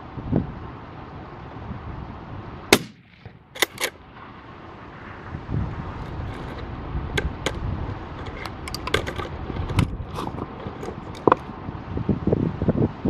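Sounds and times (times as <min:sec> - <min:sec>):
wind rumbling on microphone: 0:00.0 - 0:13.0
sharp clicks and ticks: 0:02.8 - 0:04.0.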